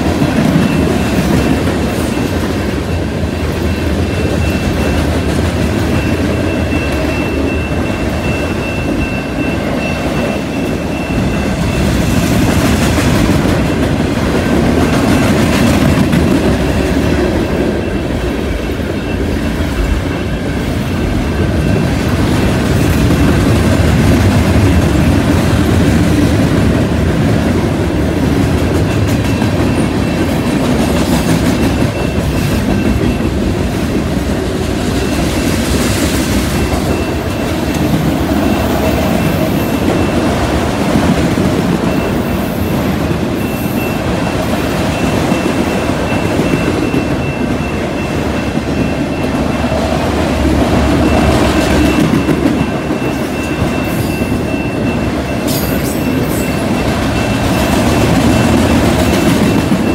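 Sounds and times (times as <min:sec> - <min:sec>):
crossing bell ringing: 0:00.0 - 0:59.9
train wheels rumbling on rails: 0:00.0 - 0:59.9.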